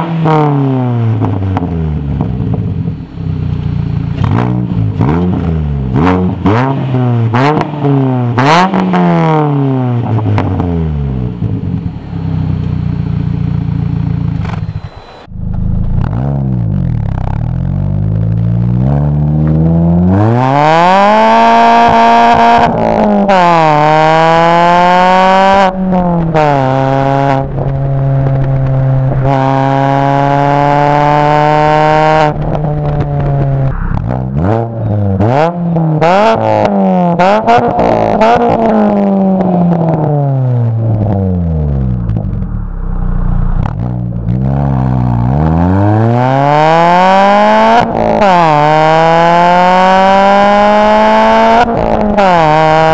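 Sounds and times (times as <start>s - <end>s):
car engine accelerating: 0.0s - 52.9s.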